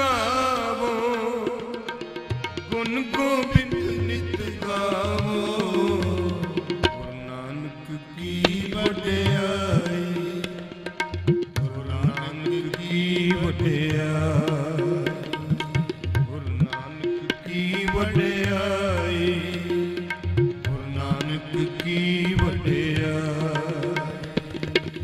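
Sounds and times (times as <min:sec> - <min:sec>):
tabla strikes: 0:00.0 - 0:07.4, 0:08.0 - 0:25.0
person singing: 0:00.0 - 0:10.5
harmonium drone and melody: 0:00.0 - 0:25.0.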